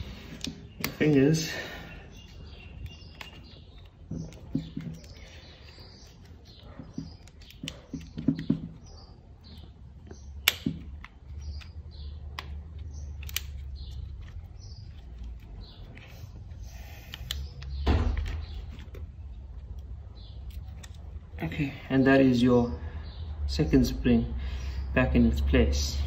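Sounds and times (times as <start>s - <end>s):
plastic lock parts clicking: 9.5s - 16.0s.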